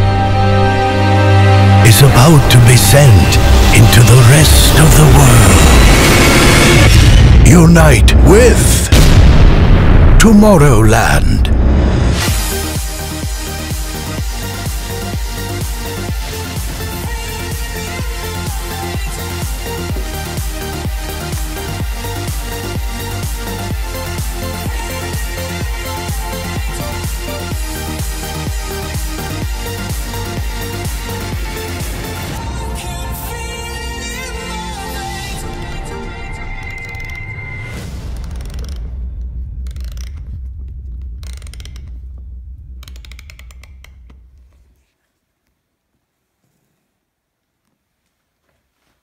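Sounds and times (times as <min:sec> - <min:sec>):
electronic dance music: 0:01.9 - 0:08.8
low hum: 0:37.5 - 0:44.7
ratcheting clicks of turning knob: 0:39.6 - 0:40.3, 0:41.0 - 0:42.0, 0:42.8 - 0:44.3.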